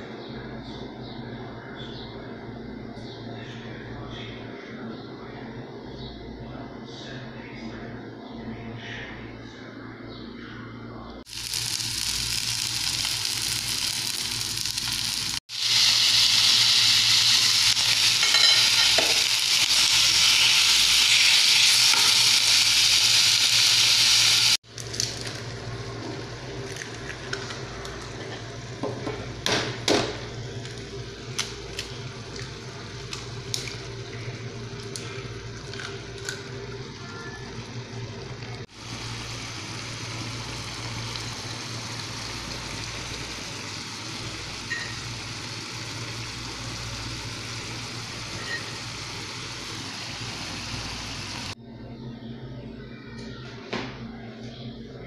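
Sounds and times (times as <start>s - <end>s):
garlic sizzling in hot oil: 11.3s - 24.6s, 38.7s - 51.6s
egg cracking: 30.6s - 34.0s, 34.7s - 36.7s.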